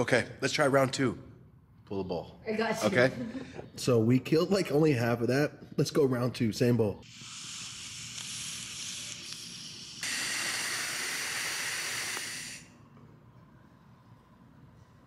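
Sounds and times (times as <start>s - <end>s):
torch lighter hissing: 7.0s - 12.7s.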